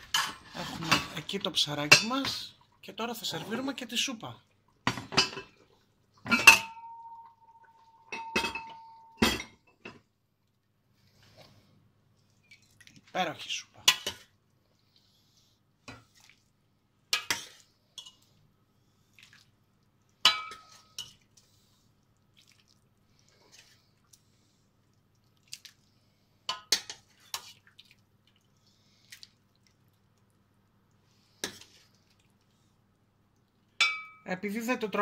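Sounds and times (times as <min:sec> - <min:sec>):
broth splashing and dripping: 0:22.2 - 0:23.4, 0:24.9 - 0:25.9, 0:27.4 - 0:30.4.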